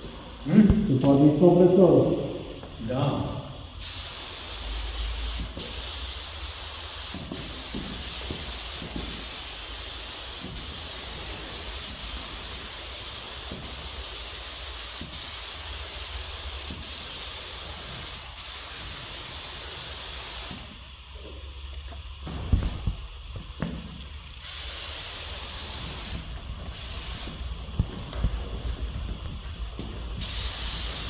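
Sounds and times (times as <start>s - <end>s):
spray gun hissing: 3.8s - 20.8s, 24.4s - 27.6s, 30.1s - 31.0s.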